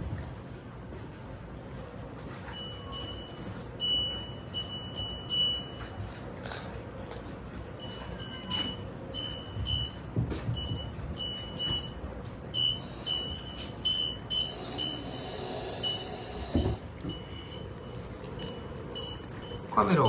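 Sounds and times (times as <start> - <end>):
metal bowl clinking: 17.0 - 20.0.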